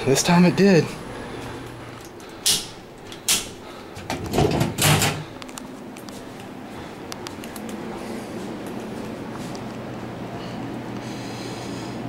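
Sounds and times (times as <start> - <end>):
door clattering rattle: 2.5 - 5.3.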